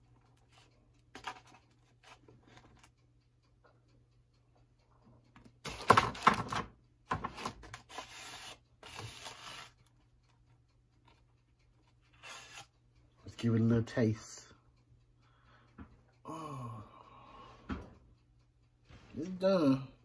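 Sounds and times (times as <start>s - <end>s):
faint taps and clicks: 15.3s - 16.2s.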